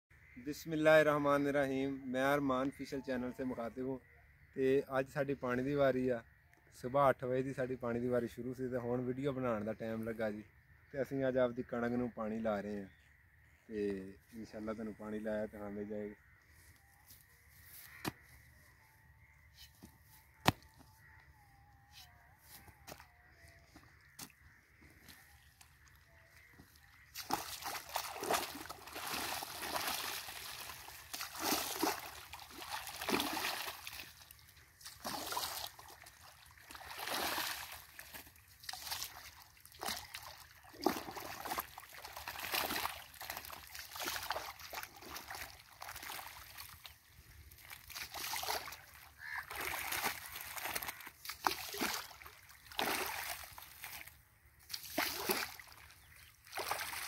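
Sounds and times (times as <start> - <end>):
water splashing in a channel: 25.6 - 57.0.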